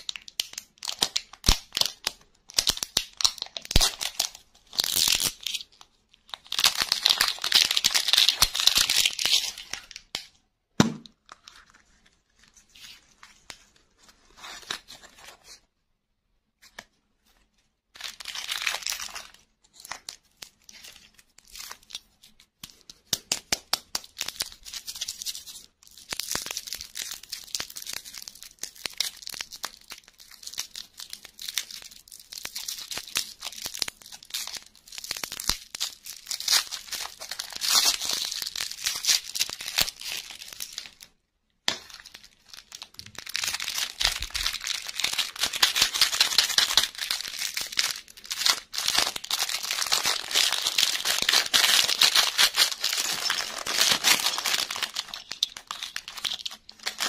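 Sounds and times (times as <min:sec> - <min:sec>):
cellophane wrappers crinkling: 0:00.0 - 0:10.3, 0:18.0 - 0:57.0
plastic packet crinkling: 0:00.0 - 0:10.3, 0:24.0 - 0:41.1, 0:41.7 - 0:57.0.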